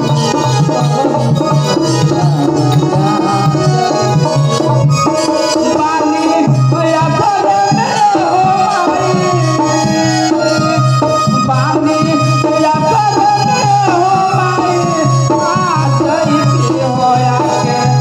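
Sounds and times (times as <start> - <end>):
hand drum beat: 0.0 - 6.2
electronic keyboard melody: 0.0 - 18.0
man singing into a microphone: 0.0 - 18.0.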